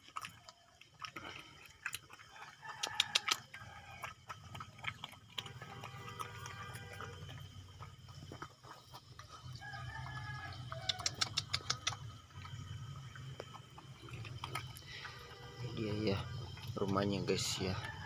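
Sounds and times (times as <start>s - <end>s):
puppy chewing and lapping: 0.0s - 18.0s
sharp clicks: 10.9s - 12.1s.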